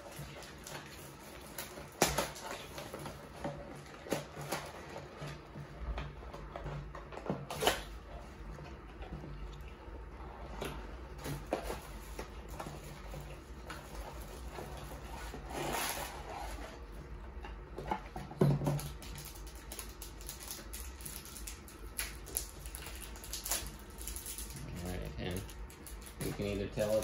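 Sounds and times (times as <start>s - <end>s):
cardboard box rustling and scraping: 13.8s - 16.9s.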